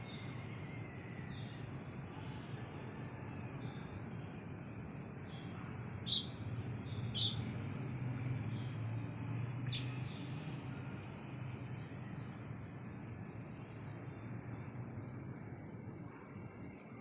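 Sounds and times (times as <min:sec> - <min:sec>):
steady low hum: 0:00.0 - 0:17.0
sparrows chirping: 0:01.3 - 0:14.6.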